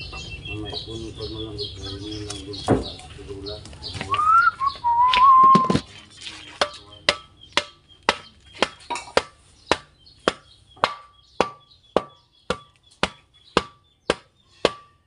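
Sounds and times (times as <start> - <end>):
hammer blows with metallic ring: 8.9 - 15.0.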